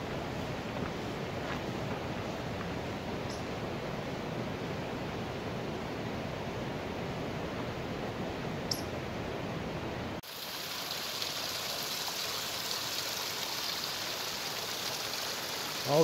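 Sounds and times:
low steady rushing noise: 0.0s - 10.2s
stream trickling over rocks: 10.2s - 16.0s.

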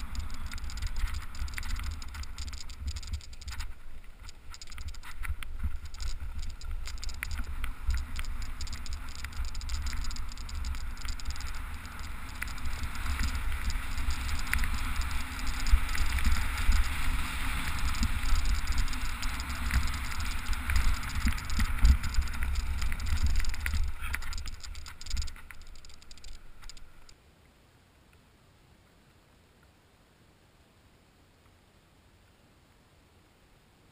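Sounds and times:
wind rumble on microphone: 0.0s - 27.1s
buggy wheels and frame rattling: 0.0s - 27.2s.

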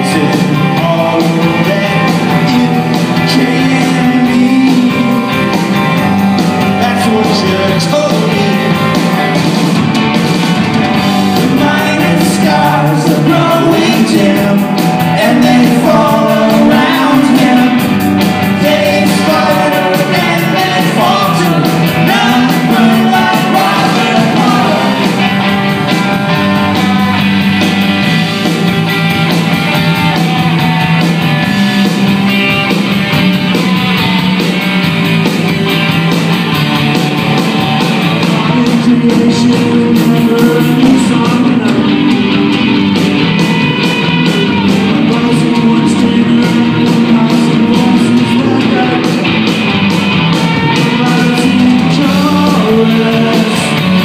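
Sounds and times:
person singing: 0.0s - 9.2s, 11.2s - 27.4s, 37.9s - 42.6s, 44.1s - 49.6s, 50.4s - 54.0s
bass guitar: 0.0s - 54.0s
drums: 0.0s - 54.0s
electric guitars: 0.0s - 54.0s.

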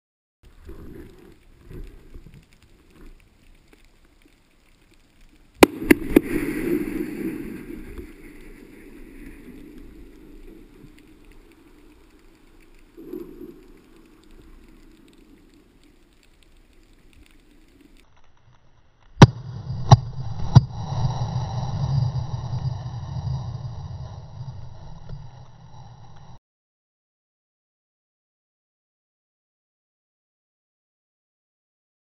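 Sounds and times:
underwater explosion boom: 5.6s - 8.4s.

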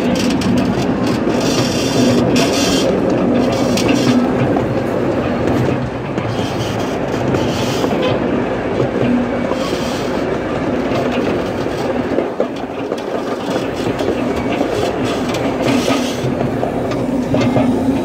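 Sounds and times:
rail joint clicks: 0.0s - 18.0s
train wheels rumbling on rails: 0.0s - 18.0s.

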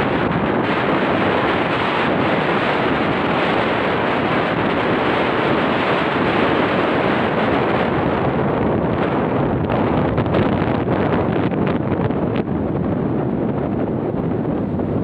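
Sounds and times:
wind on microphone: 0.0s - 15.0s.

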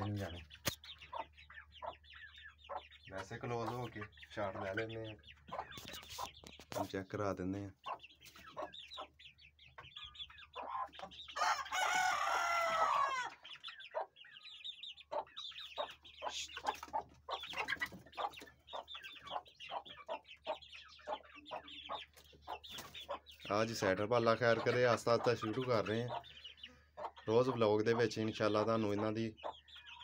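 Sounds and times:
chicks peeping: 0.0s - 30.0s
hens clucking: 0.0s - 30.0s
rooster crowing: 11.4s - 13.3s.

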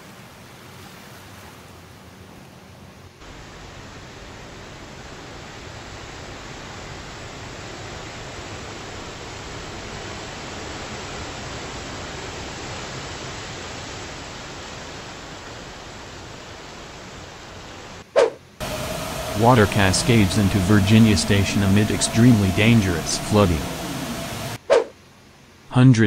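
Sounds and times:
car driving through water splashing: 18.6s - 24.6s
water rushing on flooded street: 18.6s - 24.6s.

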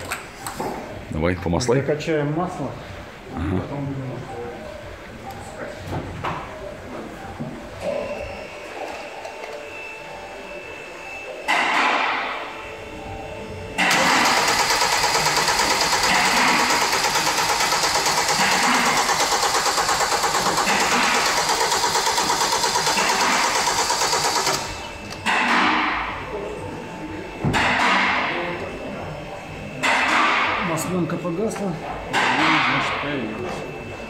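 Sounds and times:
starter cranking engine: 13.9s - 24.7s.

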